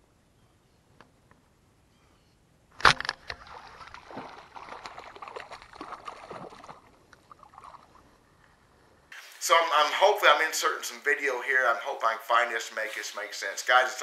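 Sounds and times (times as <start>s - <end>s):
fish splashing at water surface: 3.2s - 8.0s.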